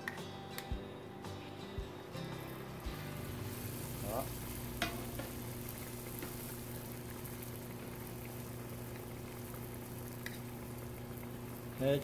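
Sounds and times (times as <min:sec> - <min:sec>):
food sizzling in hot oil: 0:02.0 - 0:12.0.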